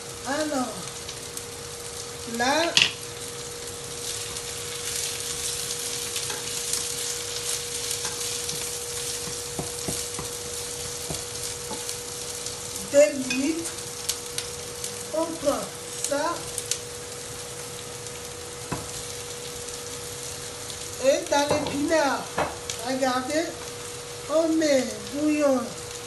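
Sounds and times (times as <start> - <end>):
onions sizzling in oil: 0.0 - 26.0
spatula scraping pan: 4.2 - 12.0.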